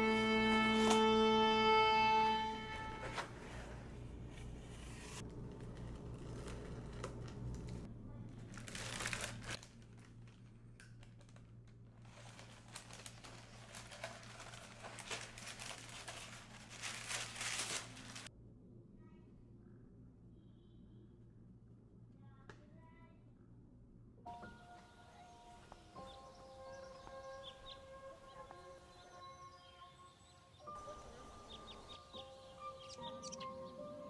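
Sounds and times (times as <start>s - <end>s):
faint low hum: 0.0s - 29.9s
paper rustling and crinkling: 2.8s - 18.3s.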